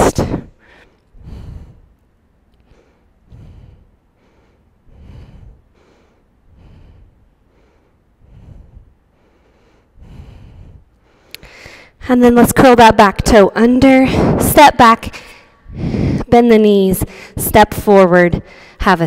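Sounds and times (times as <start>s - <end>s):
woman breathing: 0.1s - 12.0s, 14.0s - 14.4s, 15.1s - 16.4s, 17.0s - 17.4s, 18.4s - 18.8s.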